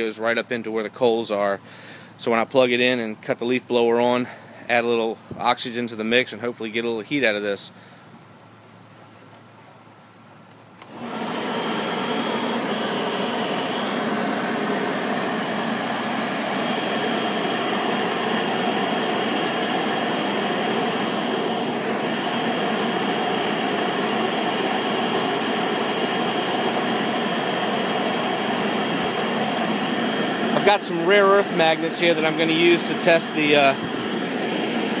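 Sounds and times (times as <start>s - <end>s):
leaf blower running: 10.8s - 35.0s.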